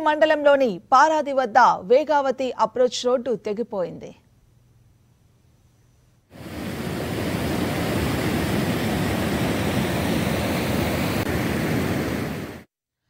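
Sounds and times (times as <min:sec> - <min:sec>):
floodwater rushing: 0:06.4 - 0:12.6.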